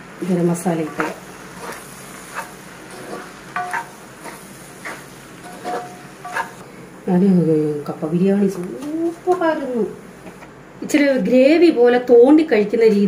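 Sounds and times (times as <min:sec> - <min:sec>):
faint frying sizzle: 0:00.0 - 0:13.0
spatula scraping frying pan: 0:00.3 - 0:06.6.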